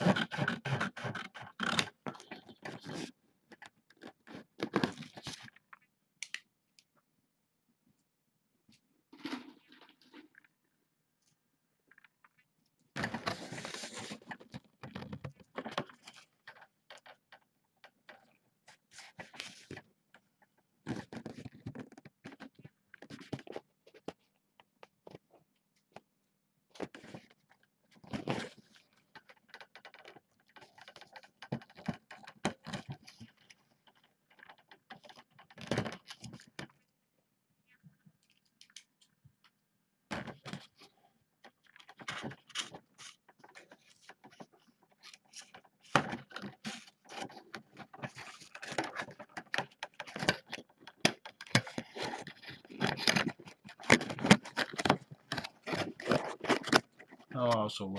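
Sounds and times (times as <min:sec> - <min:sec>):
rustling and scraping handling: 0:08.7 - 0:26.2, 0:37.7 - 0:57.4.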